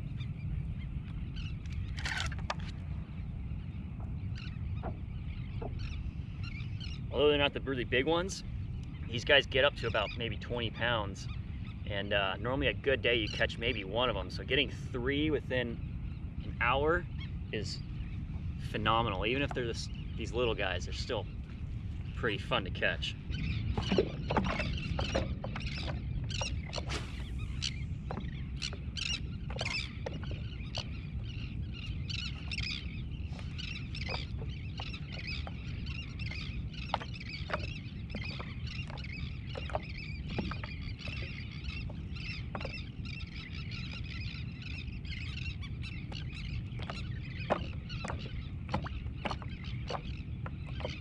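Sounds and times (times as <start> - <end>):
wind rumble on microphone: 0.0 - 51.0
water lapping against board: 1.6 - 3.0, 3.9 - 6.0, 17.8 - 51.0.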